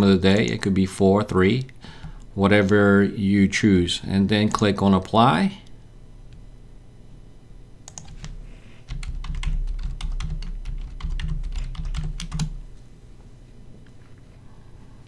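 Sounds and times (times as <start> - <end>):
typing on keyboard: 7.9 - 12.6.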